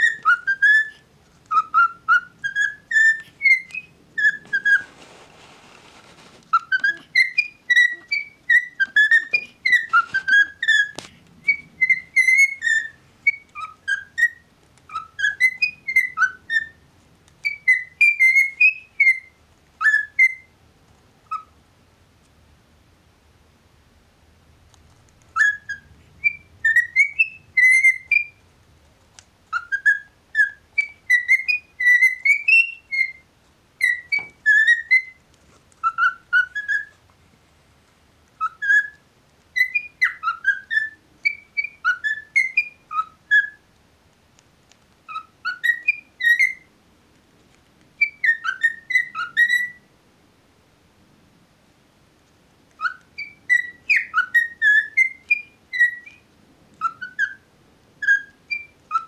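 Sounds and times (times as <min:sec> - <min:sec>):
cockatiel whistling: 0:00.0 - 0:05.0, 0:06.2 - 0:20.6, 0:21.2 - 0:21.6, 0:25.2 - 0:28.4, 0:29.5 - 0:35.2, 0:35.8 - 0:37.0, 0:38.4 - 0:43.7, 0:45.1 - 0:46.7, 0:48.0 - 0:49.9, 0:52.7 - 0:59.0.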